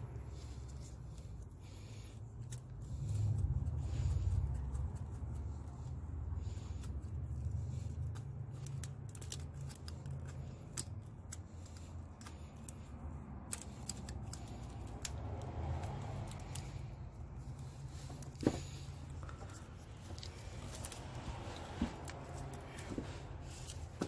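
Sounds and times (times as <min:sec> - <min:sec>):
metal tool clicks and ticks: 0:08.1 - 0:17.0.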